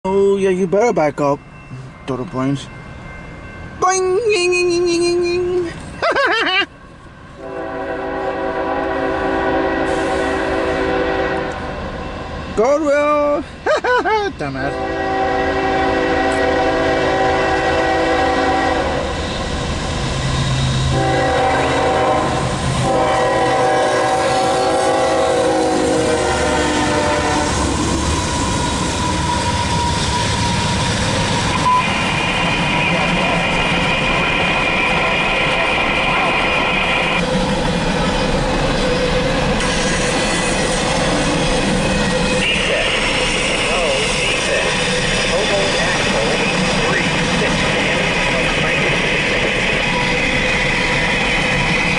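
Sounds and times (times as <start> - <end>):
locomotive air horn chord: 7.4 - 11.8, 14.8 - 19.1, 20.9 - 28.0, 42.4 - 44.4.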